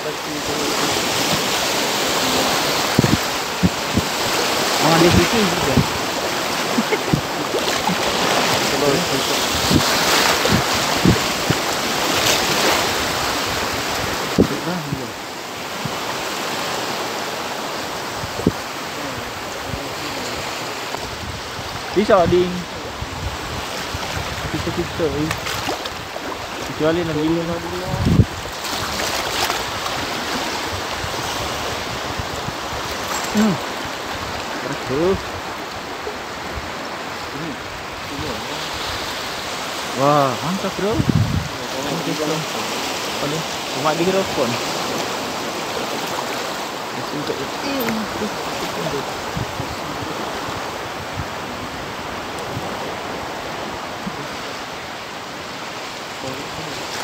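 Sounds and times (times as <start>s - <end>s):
person's voice: 0.0s - 1.2s, 2.0s - 2.8s, 4.8s - 6.0s, 6.7s - 9.5s, 14.4s - 15.2s, 18.9s - 20.6s, 21.9s - 23.0s, 26.7s - 28.2s, 33.3s - 33.7s, 34.6s - 35.2s, 40.0s - 44.6s, 46.9s - 50.3s, 56.2s - 56.9s
small waves rushing: 0.0s - 57.0s
wind on microphone: 0.0s - 57.0s.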